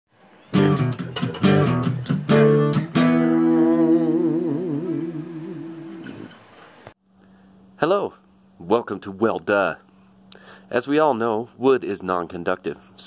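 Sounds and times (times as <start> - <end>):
guitar chords: 0.5 - 6.6.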